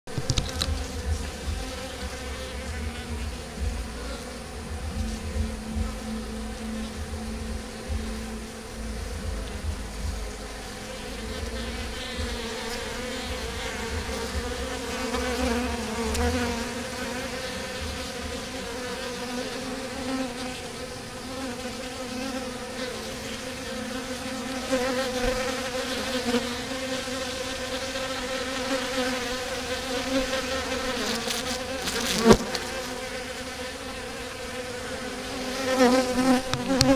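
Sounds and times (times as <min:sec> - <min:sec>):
honeybees buzzing: 0:00.1 - 0:36.9
low rumble: 0:00.6 - 0:16.4.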